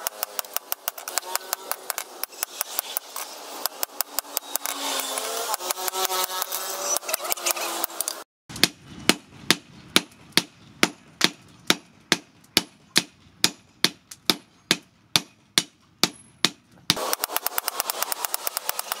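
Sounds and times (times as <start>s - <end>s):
hammer striking steel on anvil: 8.6s - 19.0s.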